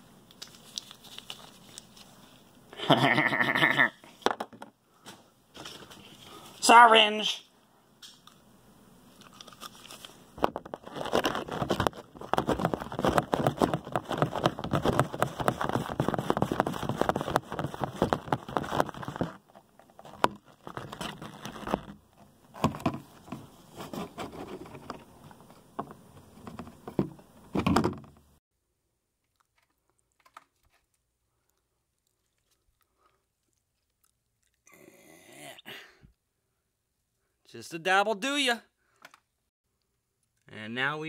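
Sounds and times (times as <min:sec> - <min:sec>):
gloved hands rubbing microphone: 0:11.4 - 0:19.4.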